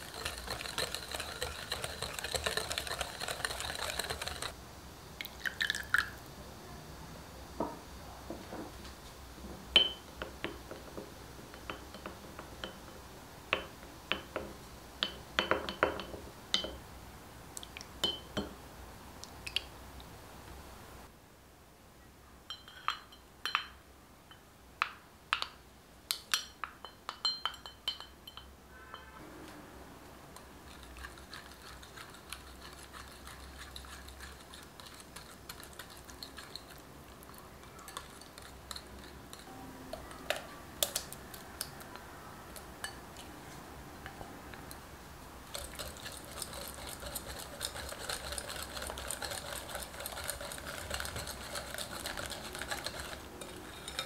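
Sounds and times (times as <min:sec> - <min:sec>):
whisk beating in glass bowl: 0:00.0 - 0:04.6, 0:30.6 - 0:36.8, 0:45.5 - 0:54.0.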